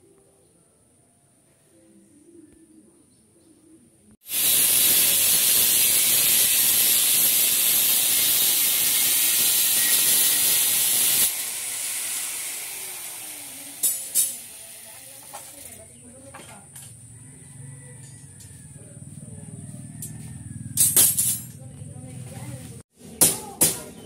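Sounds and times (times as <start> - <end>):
angle grinder grinding steel: 4.3 - 15.8.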